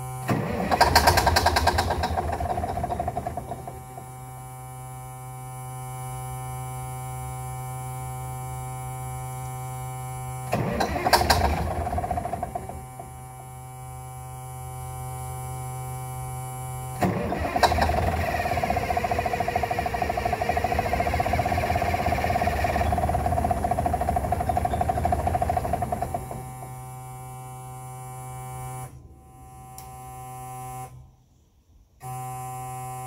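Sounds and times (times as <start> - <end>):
diesel engine firing in rough bursts: 0.2 - 4.4, 10.5 - 13.5, 17.0 - 27.0.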